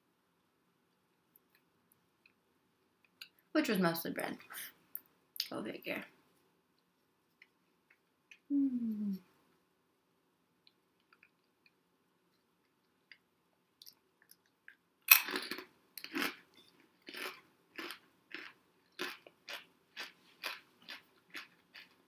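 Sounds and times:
potato chip crunching: 15.1 - 22.0.

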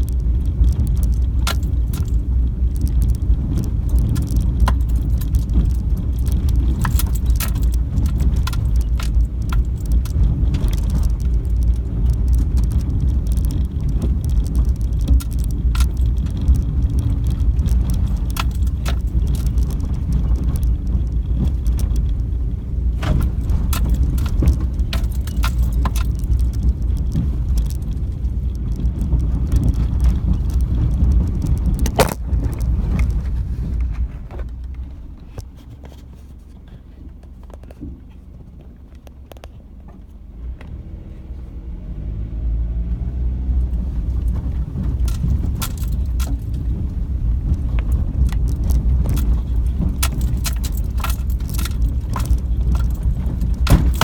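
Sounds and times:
car rumbling on dirt road: 0.0 - 54.0
car engine accelerating: 38.3 - 54.0
loose items rattling: 47.9 - 54.0.

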